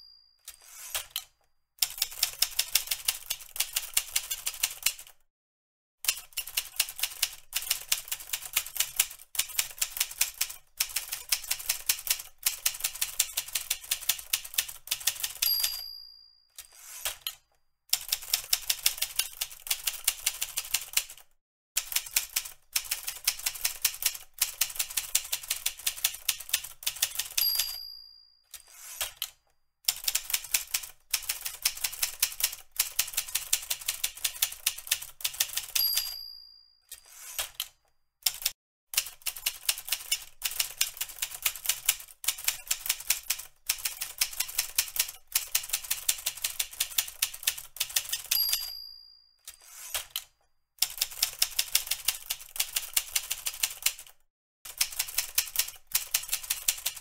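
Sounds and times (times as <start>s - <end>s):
typewriter margin bell ding: 0.0s - 1.2s, 15.1s - 17.3s, 27.1s - 29.2s, 35.4s - 37.6s, 48.0s - 50.2s
typewriter keys clacking: 0.5s - 5.1s, 6.1s - 15.8s, 21.8s - 27.8s, 28.5s - 36.1s, 36.9s - 48.7s, 49.5s - 57.0s.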